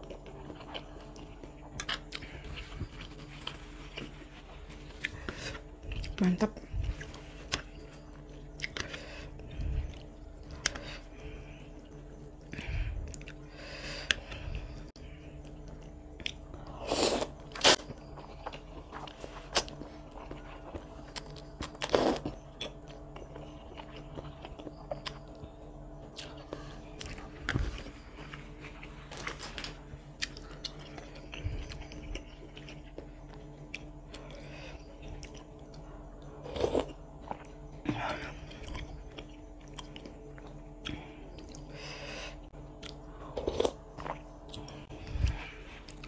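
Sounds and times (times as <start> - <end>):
wet chewing: 0.0 - 6.2, 6.8 - 14.3
faint steady hum: 0.0 - 46.0.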